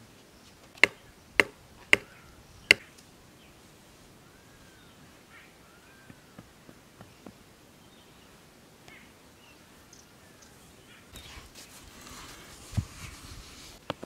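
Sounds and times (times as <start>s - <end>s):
hand tool chopping earth: 0.8s - 2.1s.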